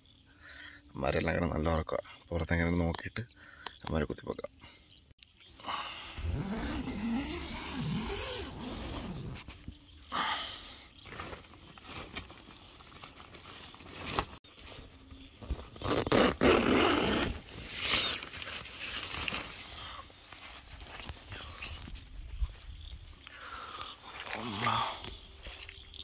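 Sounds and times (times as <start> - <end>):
tent zipper pulled: 6.2 - 9.6, 15.5 - 19.6.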